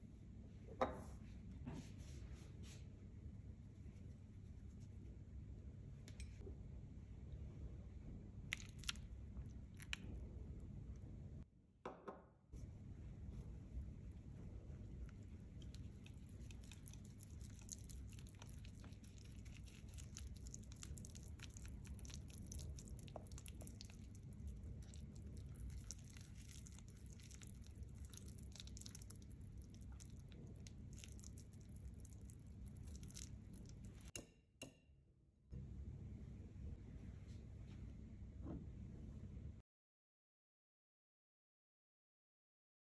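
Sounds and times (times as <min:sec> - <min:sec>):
batter squishing: 0:08.4 - 0:11.1, 0:12.6 - 0:34.1.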